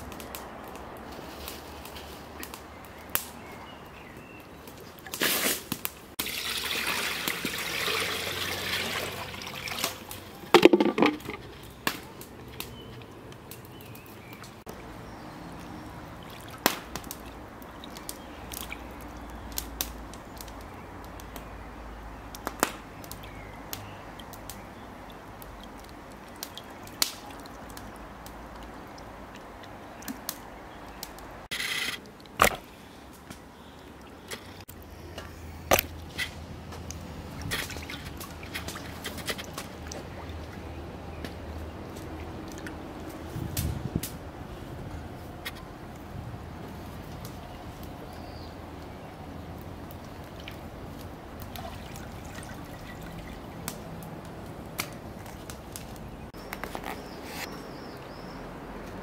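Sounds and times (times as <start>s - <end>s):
liquid pouring: 6.2s - 11.4s, 51.6s - 53.5s.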